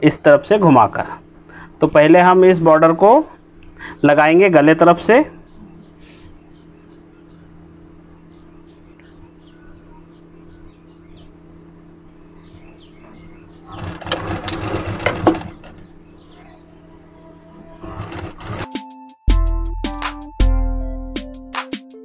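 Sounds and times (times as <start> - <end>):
steady low hum: 0.0 - 18.7
faint high chirps: 5.5 - 11.4
sewing machine stitching: 13.5 - 15.9, 17.7 - 18.8.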